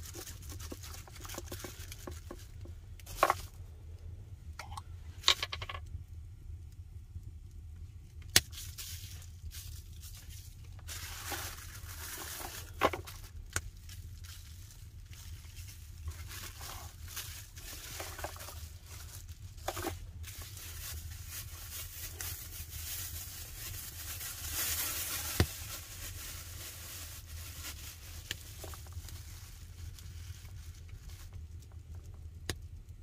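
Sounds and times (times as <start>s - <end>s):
plastic bags crinkling: 0.0s - 3.6s, 8.4s - 32.1s
wood fire crackling: 5.8s - 25.2s, 28.1s - 33.0s.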